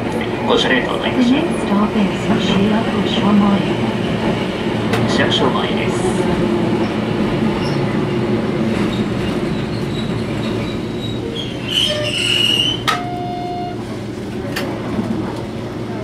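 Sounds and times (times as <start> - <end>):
tram wheels rumbling on rail: 0.0 - 16.0
short high squeal: 10.0 - 13.7.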